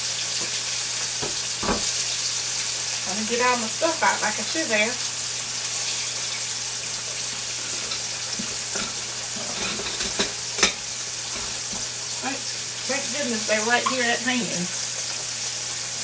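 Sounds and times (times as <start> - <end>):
meat sizzling in hot oil: 0.0 - 16.0.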